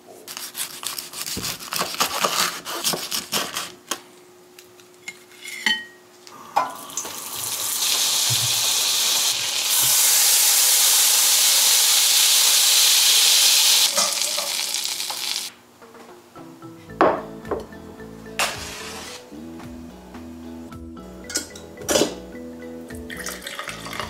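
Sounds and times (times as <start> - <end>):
butter sizzling in frying pan: 7.0 - 15.5.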